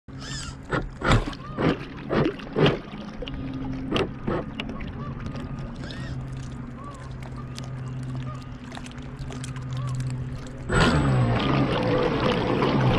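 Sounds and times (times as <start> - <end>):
boat motor humming: 0.1 - 12.9
water splashing: 0.1 - 12.9.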